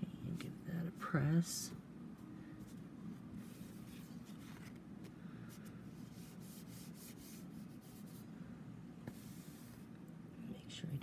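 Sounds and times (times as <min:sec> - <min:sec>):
fingers rubbing on paper: 0:06.1 - 0:08.2.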